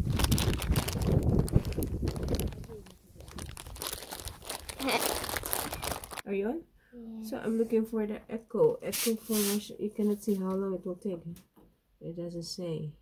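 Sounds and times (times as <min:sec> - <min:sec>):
low rumble: 0:00.0 - 0:04.6
crackling rustling handling noise: 0:00.0 - 0:06.2.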